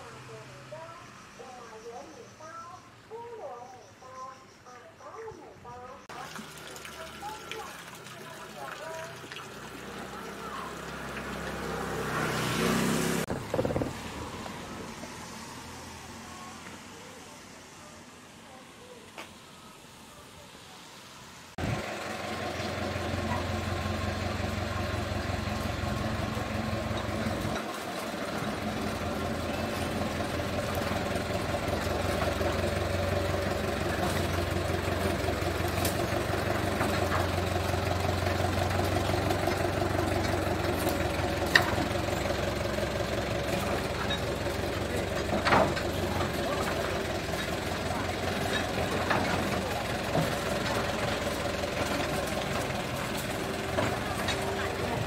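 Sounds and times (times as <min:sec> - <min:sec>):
engine idling: 0:00.0 - 0:17.3, 0:21.6 - 0:55.0.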